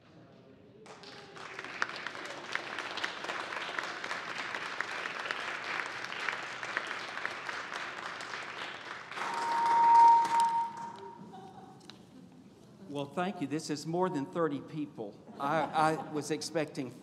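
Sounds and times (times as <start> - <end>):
audience applauding: 0.9 - 11.2.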